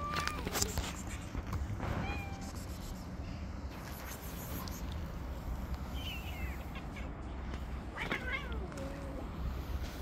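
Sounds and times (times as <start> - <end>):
street background rumble: 0.0 - 10.0.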